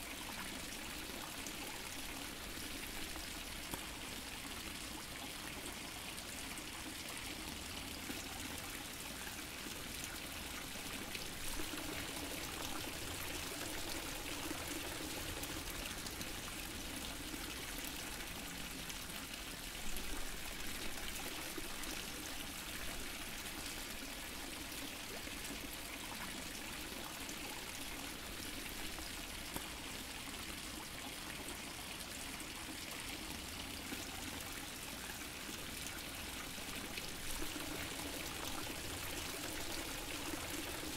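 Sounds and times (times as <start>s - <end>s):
water fountain splashing: 36.8s - 40.9s.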